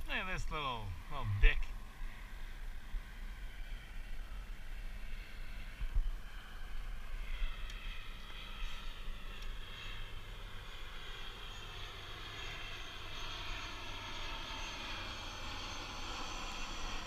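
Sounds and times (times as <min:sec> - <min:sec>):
distant engine drone: 0:00.0 - 0:17.0
wind rumble on microphone: 0:00.8 - 0:10.2.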